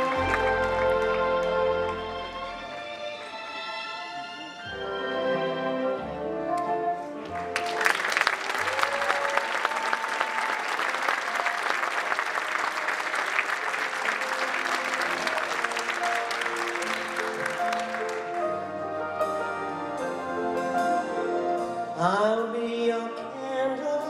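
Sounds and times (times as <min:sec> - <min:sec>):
audience applauding: 0:00.0 - 0:02.4, 0:07.2 - 0:18.7
piano playing: 0:00.0 - 0:08.6, 0:10.9 - 0:24.0.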